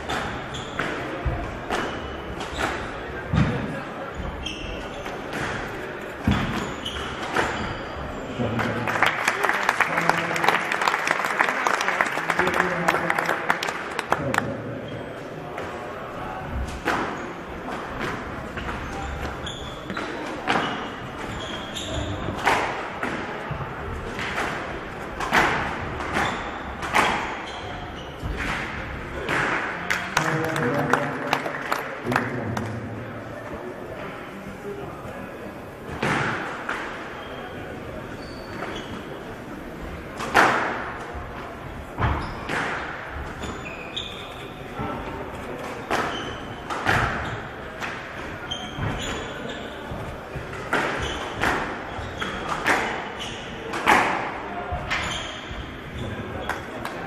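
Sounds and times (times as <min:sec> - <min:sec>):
shoes squeaking on wooden floor: 0:00.0 - 0:03.4, 0:04.1 - 0:08.5, 0:18.6 - 0:22.5, 0:25.4 - 0:28.6, 0:37.1 - 0:39.2, 0:41.6 - 0:47.6, 0:48.2 - 0:54.0, 0:54.6 - 0:56.8
squash ball hits echoing: 0:00.0 - 0:03.8, 0:04.9 - 0:08.9, 0:16.5 - 0:30.8, 0:35.9 - 0:37.3, 0:40.0 - 0:41.0, 0:42.0 - 0:43.6, 0:44.8 - 0:57.0.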